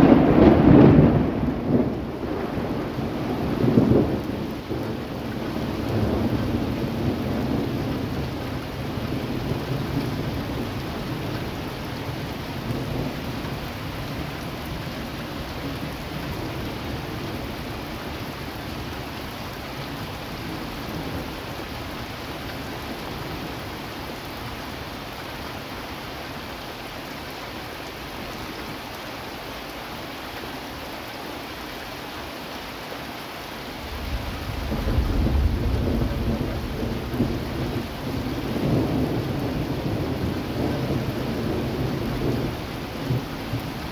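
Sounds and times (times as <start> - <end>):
thunder rumbling: 0.0 - 19.1, 33.8 - 43.9
steady rain: 0.0 - 43.9.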